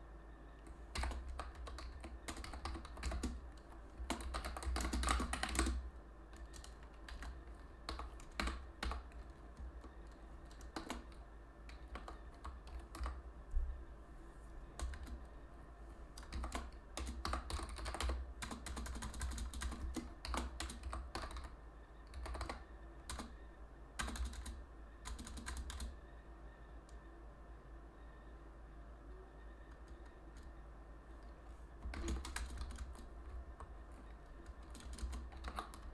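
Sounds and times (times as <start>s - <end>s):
typing on keyboard: 0.6s - 13.2s, 14.8s - 15.3s, 16.2s - 23.4s, 24.0s - 26.0s, 29.6s - 30.5s, 31.2s - 35.9s.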